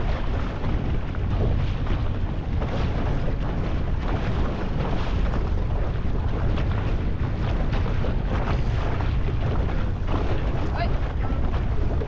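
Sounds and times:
boat on choppy water: 0:00.0 - 0:12.0
outboard motor running: 0:00.0 - 0:12.0
wind rumbling on microphone: 0:00.0 - 0:12.0.

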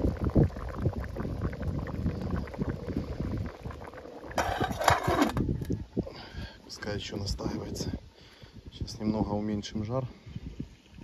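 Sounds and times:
stew bubbling in a pot: 0:00.0 - 0:09.8
wind on microphone: 0:00.0 - 0:11.0
metal lid scraping pot rim: 0:04.3 - 0:05.5.

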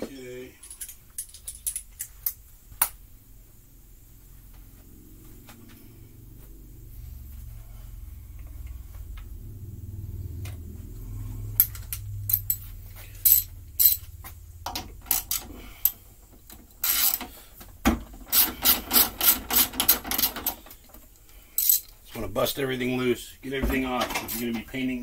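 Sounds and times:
socket ratchet wrench clicking: 0:13.2 - 0:14.1, 0:14.7 - 0:16.0, 0:16.8 - 0:17.3, 0:18.3 - 0:20.6.

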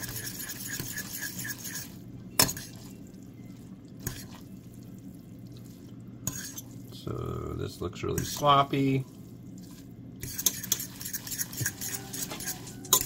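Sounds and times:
fork scraping a metal saucepan: 0:00.0 - 0:02.8, 0:06.3 - 0:06.7, 0:10.2 - 0:13.0.

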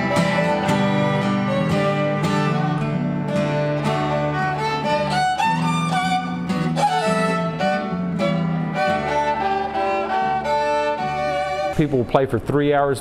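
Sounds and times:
strummed acoustic guitar: 0:00.0 - 0:11.8
fiddle playing a tune: 0:00.0 - 0:12.0.

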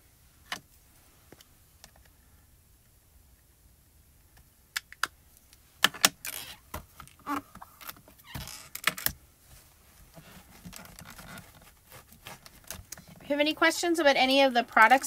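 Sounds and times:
cloth rubbing: 0:09.4 - 0:13.2.

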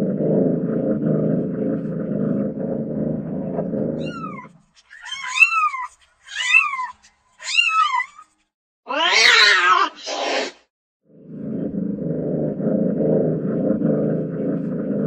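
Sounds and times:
cat meowing: 0:04.0 - 0:08.3, 0:08.9 - 0:10.5.

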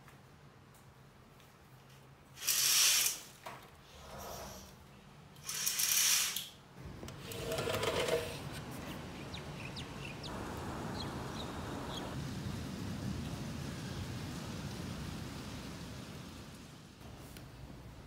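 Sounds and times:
curtains scraping along rod: 0:02.4 - 0:03.3, 0:05.4 - 0:06.5, 0:07.2 - 0:08.5
rain hissing: 0:02.4 - 0:04.7, 0:08.3 - 0:18.0.

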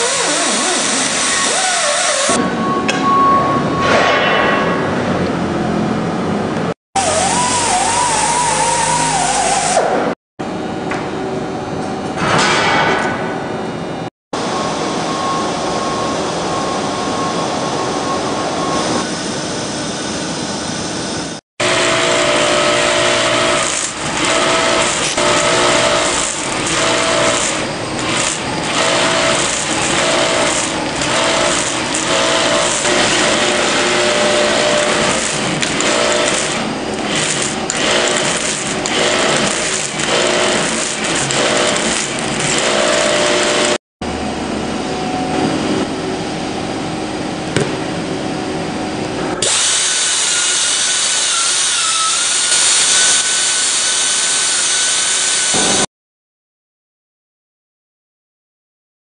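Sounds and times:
air-powered rotary tool grinding rubber: 0:00.0 - 0:02.4, 0:21.6 - 0:43.8, 0:49.4 - 0:55.8.

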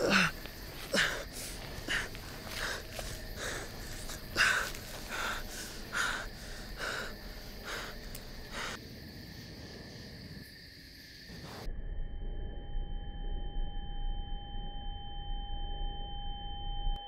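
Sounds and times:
man breathing hard: 0:00.0 - 0:08.8.

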